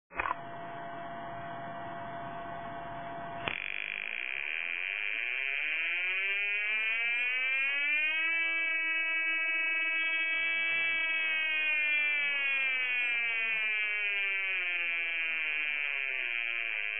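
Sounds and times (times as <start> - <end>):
buzzing tone rising in pitch: 3.4 - 16.9
loudspeaker buzzing tone: 3.4 - 16.9.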